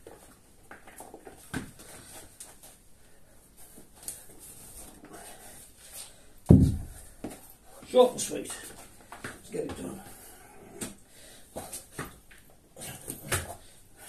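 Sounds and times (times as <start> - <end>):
hard breathing: 3.0 - 8.0, 9.9 - 12.0
kettlebell thud on mat: 6.5 - 7.0.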